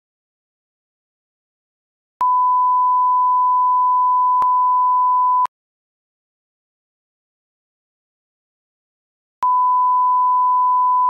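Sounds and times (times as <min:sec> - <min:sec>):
electronic test-tone beep: 0:02.2 - 0:05.5, 0:09.4 - 0:11.0.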